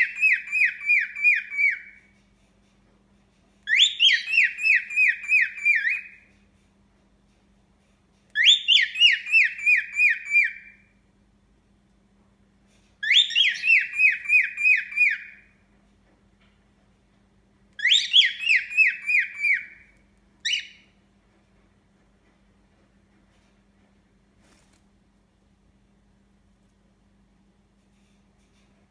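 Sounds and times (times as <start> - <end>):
cockatiel whistling: 0.0 - 2.0, 3.7 - 6.2, 8.4 - 10.8, 13.0 - 15.5, 17.8 - 20.9.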